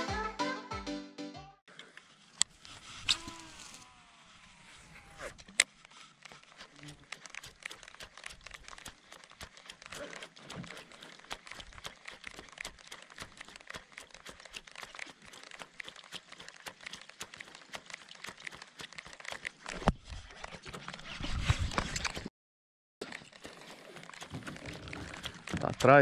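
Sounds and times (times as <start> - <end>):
fishing reel clicking: 3.0 - 19.7, 23.2 - 26.0.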